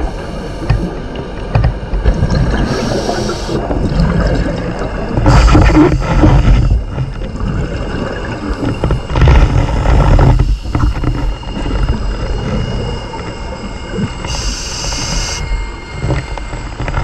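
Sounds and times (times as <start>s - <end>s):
gurgling exhaled bubbles: 2.0s - 13.0s
scuba regulator hiss: 2.7s - 3.6s, 14.3s - 15.4s.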